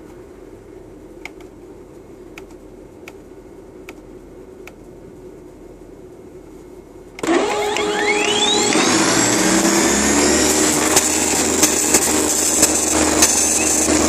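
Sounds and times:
printer whine rising in pitch: 7.2 - 14.0
printer rattling: 10.5 - 14.0.

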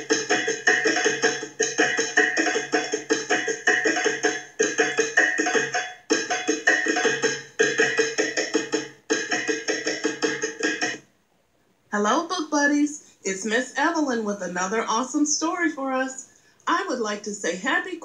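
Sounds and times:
fast drum music: 0.0 - 11.0.

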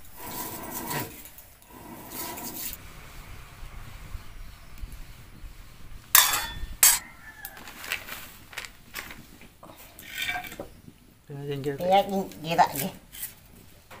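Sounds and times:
metal cookware clanking: 6.1 - 7.1, 10.0 - 10.6
rustling: 6.1 - 11.0.

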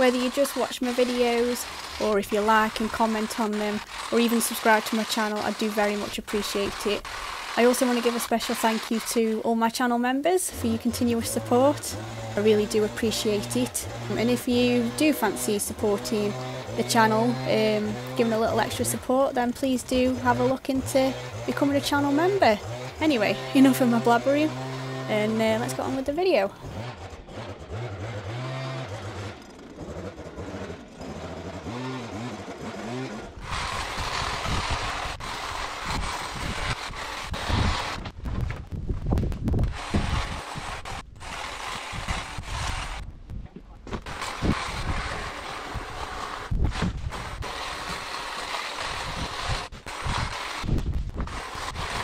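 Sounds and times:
hedge trimmer buzzing: 0.0 - 9.4, 10.5 - 38.1, 39.6 - 43.1, 44.0 - 52.0
leaf blower engine running: 0.0 - 9.4, 10.5 - 38.0, 39.6 - 43.0, 44.0 - 52.0
wind on microphone: 33.4 - 48.0, 48.8 - 52.0.

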